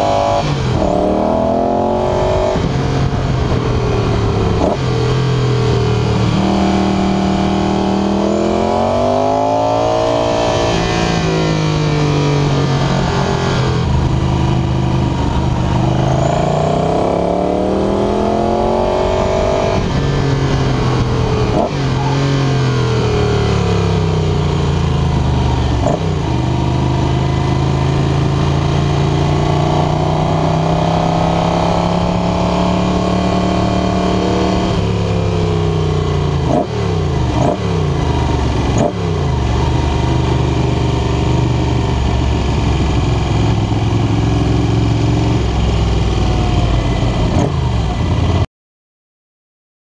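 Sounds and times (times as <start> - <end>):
motorcycle engine at racing speed: 0.0 - 48.4.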